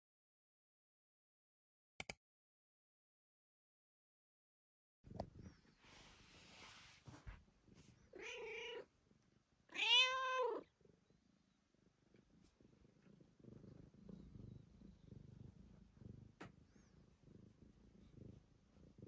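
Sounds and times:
cat purring quietly: 5.1s - 19.0s
cat meowing: 8.1s - 8.9s, 9.7s - 10.7s.

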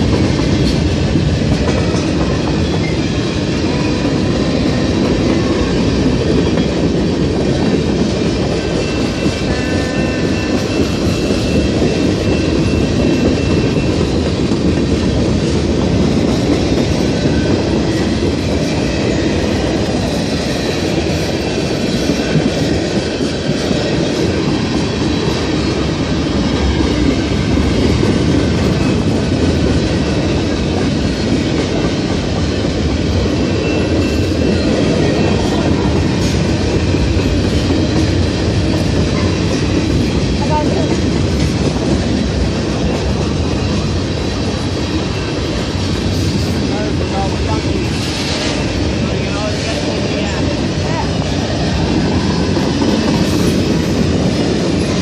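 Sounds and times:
steel train wheels on rails: 0.0s - 55.0s
high wheel squeal: 8.6s - 14.2s.

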